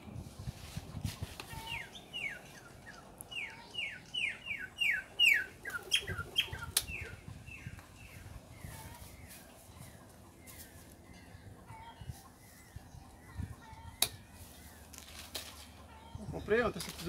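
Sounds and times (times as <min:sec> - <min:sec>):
bird whistling downward notes: 0:03.3 - 0:07.7.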